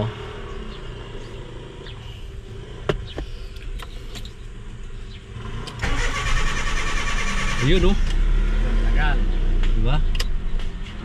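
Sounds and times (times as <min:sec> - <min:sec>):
car engine starter cranking: 0:05.6 - 0:08.2.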